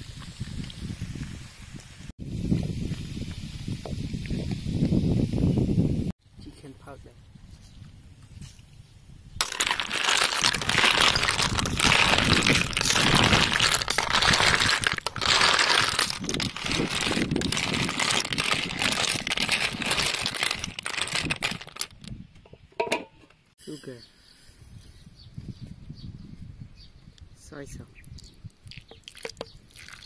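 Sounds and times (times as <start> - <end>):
shells clattering in metal wok: 9.4 - 15.1.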